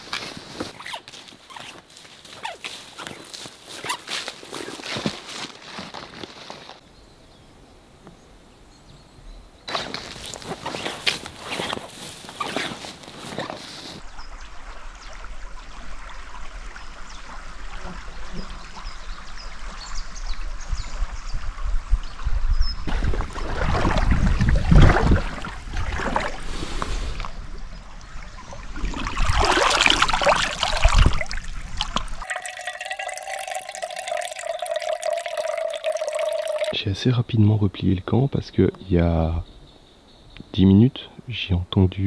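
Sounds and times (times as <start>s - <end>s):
water splashing around legs: 22.9s - 26.8s, 28.1s - 36.8s
water bottle filling gurgling: 22.9s - 27.3s, 28.3s - 36.8s.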